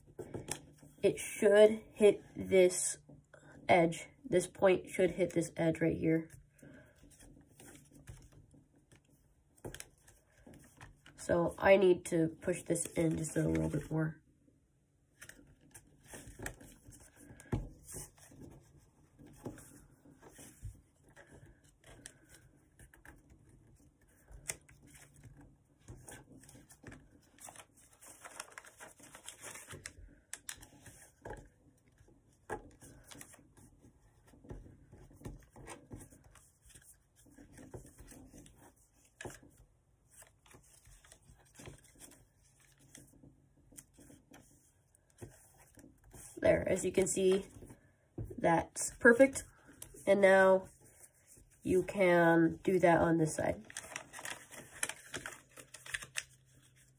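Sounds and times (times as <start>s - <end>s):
paper crinkling and rustling: 15.1s - 47.8s, 53.4s - 56.9s.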